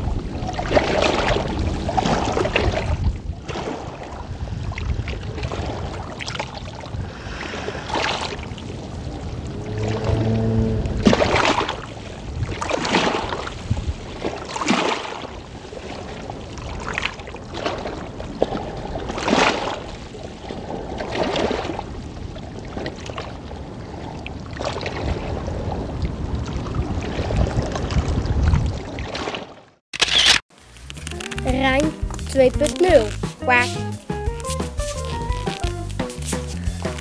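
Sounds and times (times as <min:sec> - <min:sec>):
wind rumbling on microphone: 0:00.0 - 0:29.2
floodwater sloshing and splashing: 0:00.0 - 0:29.8.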